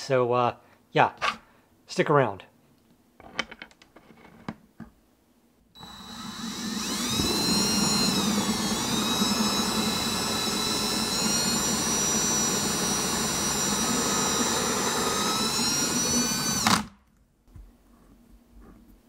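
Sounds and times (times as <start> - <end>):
electric drill whining: 5.8 - 17.0.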